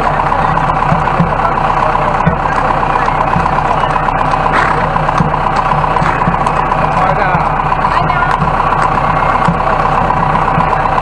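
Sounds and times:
vehicle engine idling: 0.0s - 11.0s.

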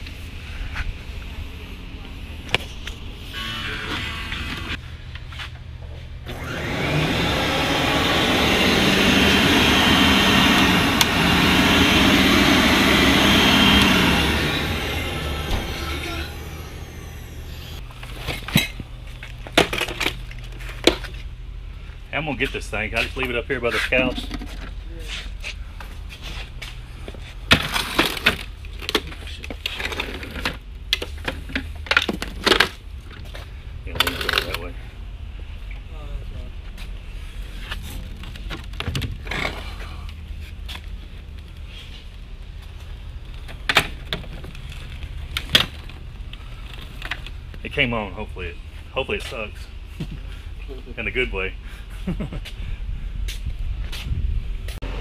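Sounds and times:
low hum: 6.2s - 19.5s
vacuum cleaner motor whirring: 6.3s - 17.8s.

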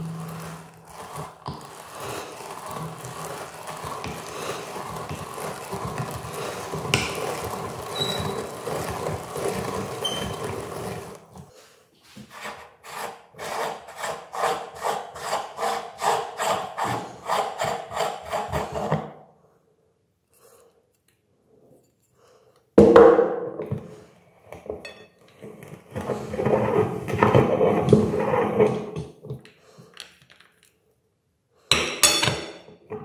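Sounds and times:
meat grinder crunching candies: 0.0s - 11.5s.

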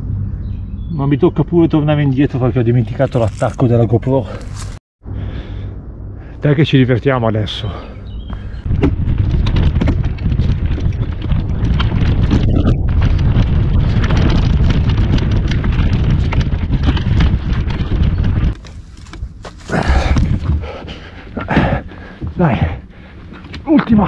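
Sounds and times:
clicks and rattles over leaves: 2.7s - 4.8s, 8.9s - 20.6s
wind buffeting microphone: 7.7s - 23.2s
bike tyres rumbling on trail: 8.0s - 24.0s.

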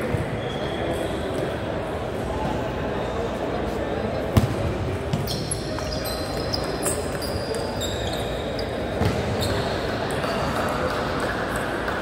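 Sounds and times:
short high squeaks: 5.2s - 8.8s.

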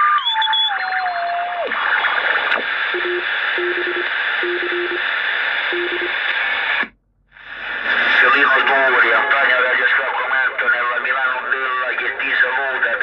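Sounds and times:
radio static hiss: 1.7s - 13.0s
low beeps: 6.9s - 10.2s.

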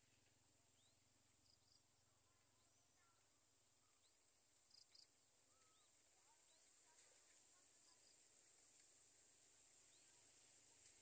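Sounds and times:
bird chirps: 3.8s - 6.7s
steady high hiss: 4.0s - 11.0s.

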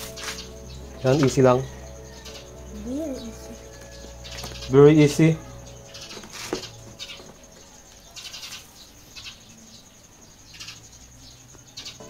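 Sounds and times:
faint animal calls: 0.0s - 9.8s.

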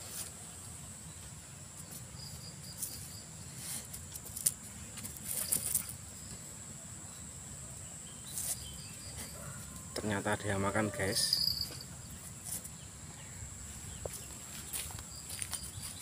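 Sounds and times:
high insect drone: 0.0s - 16.0s
rustles and clicks: 1.8s - 6.0s.

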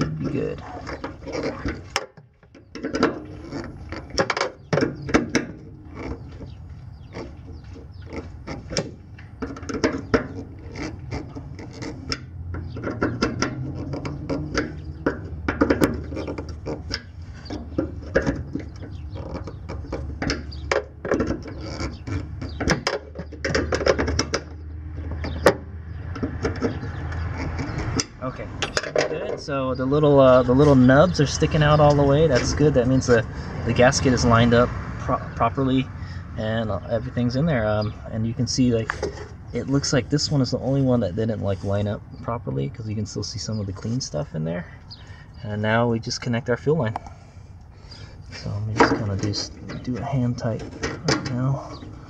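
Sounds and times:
metallic clicks and scrapes: 0.0s - 29.4s, 37.8s - 40.3s, 46.9s - 52.0s.

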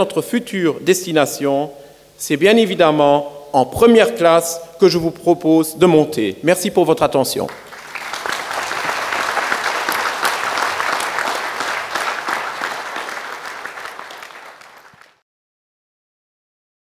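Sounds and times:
audience applauding: 7.5s - 15.2s.

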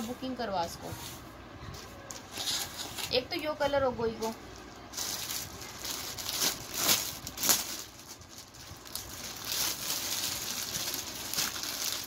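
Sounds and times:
plastic packaging crinkling: 4.2s - 12.0s.

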